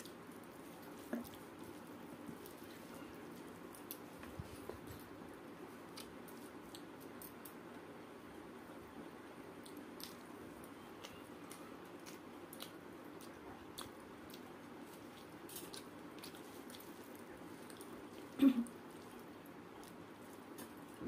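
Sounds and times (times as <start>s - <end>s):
small clicks and lip sounds: 0.0s - 7.9s, 9.5s - 21.0s
fingers squishing rice: 9.6s - 21.0s
person chewing: 10.8s - 21.0s.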